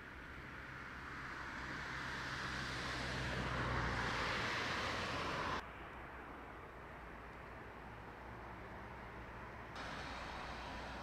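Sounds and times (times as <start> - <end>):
traffic hum: 0.0 - 11.0
fire engine driving: 9.8 - 11.0.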